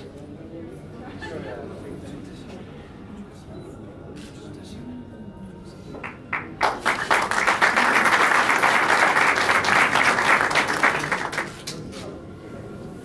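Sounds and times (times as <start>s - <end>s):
audience applauding: 6.0s - 11.8s.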